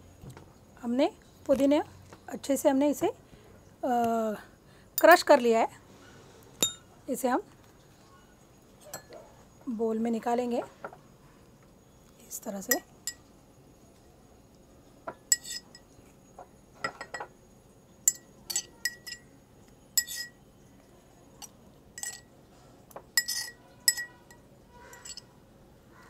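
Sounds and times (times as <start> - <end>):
metal spoon clinking in mortar: 6.6 - 6.9, 15.3 - 15.9, 18.0 - 19.3, 20.0 - 20.4, 21.4 - 22.3, 23.2 - 25.3.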